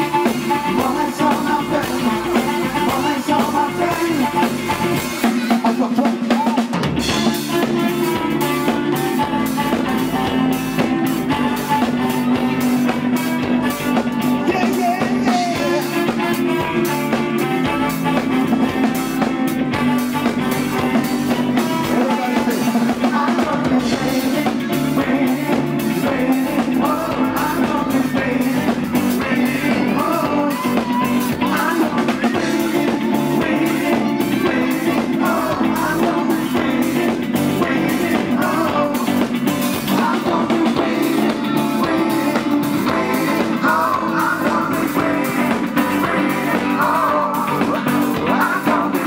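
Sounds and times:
bass: 0.0 - 49.0
drum-kit beat: 0.0 - 49.0
electric guitars: 0.0 - 49.0
keyboards: 0.0 - 49.0
people singing: 0.0 - 49.0.

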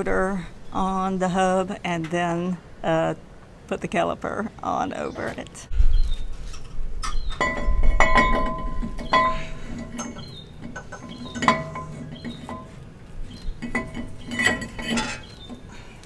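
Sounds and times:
brake rotor clinking on metal: 7.1 - 15.8.

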